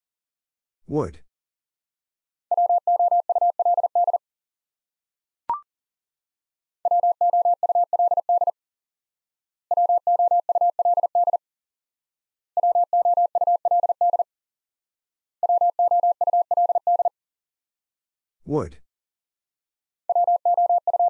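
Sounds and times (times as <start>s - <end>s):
morse code beeps: 2.5s - 4.2s, 6.9s - 8.5s, 9.7s - 11.4s, 12.6s - 14.2s, 15.4s - 17.1s, 20.1s - 21.0s.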